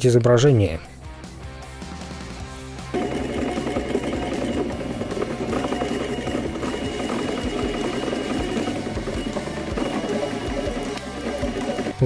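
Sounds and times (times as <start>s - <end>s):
stepper motors whirring: 3.0s - 12.0s.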